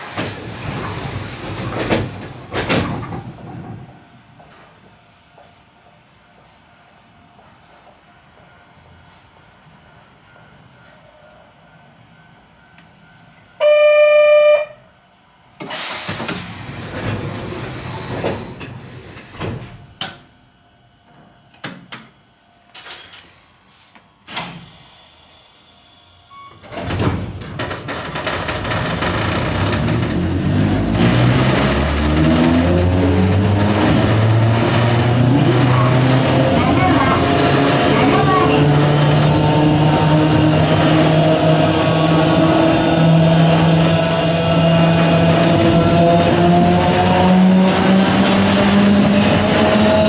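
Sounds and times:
electric train accelerating: 0.0s - 21.0s, 24.3s - 50.0s
high ringing tone: 10.3s - 14.9s
train horn tone: 13.6s - 14.9s.

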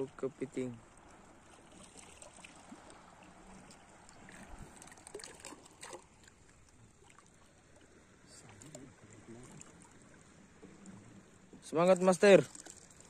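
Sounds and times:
shallow water sloshing: 0.0s - 13.0s
small splashes: 0.0s - 13.0s.

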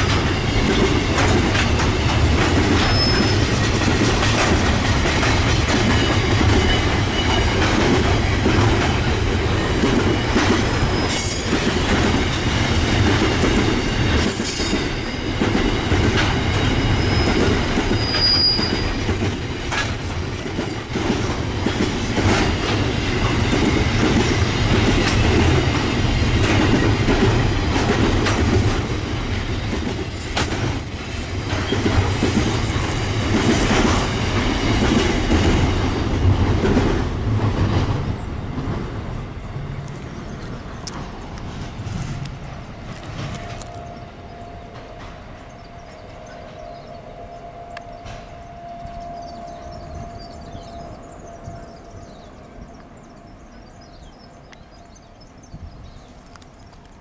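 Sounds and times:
wheels clattering over rail joints: 0.0s - 38.9s
high-pitched wheel squeals: 2.8s - 3.5s, 16.7s - 20.9s.

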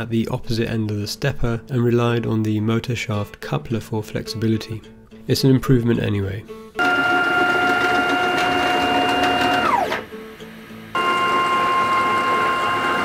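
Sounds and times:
stepper motor whine: 6.8s - 13.0s.

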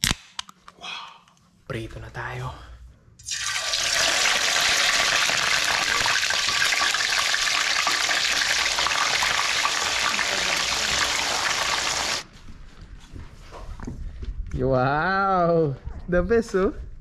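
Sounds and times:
fish frying in hot oil: 3.3s - 12.2s.

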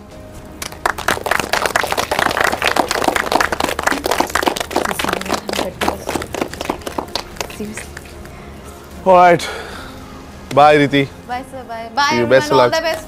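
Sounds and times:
people clapping: 0.6s - 8.3s.

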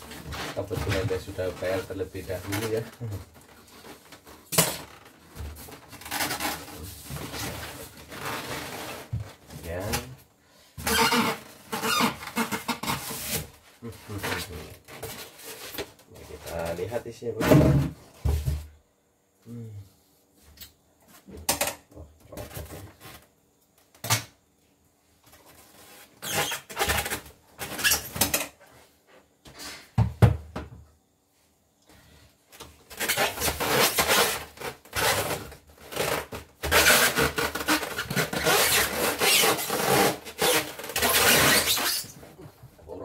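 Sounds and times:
styrofoam and cardboard scraping: 0.0s - 4.2s, 5.4s - 10.1s, 10.8s - 15.8s, 32.9s - 42.2s.

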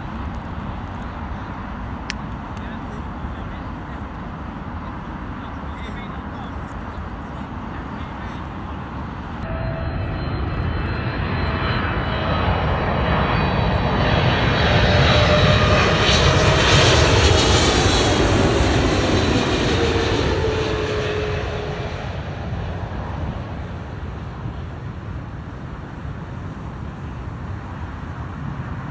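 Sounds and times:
jet airliner passing overhead: 0.0s - 28.9s
jet engine whine: 0.0s - 28.9s.

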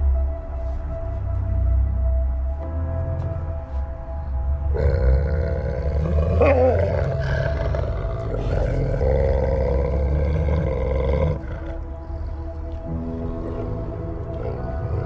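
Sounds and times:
dogs growling deeply: 4.7s - 15.0s
dog snarling: 4.8s - 11.8s.

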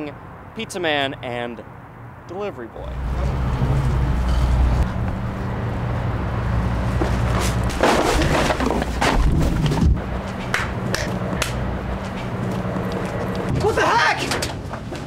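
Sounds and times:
steady low rumble: 8.8s - 13.8s.

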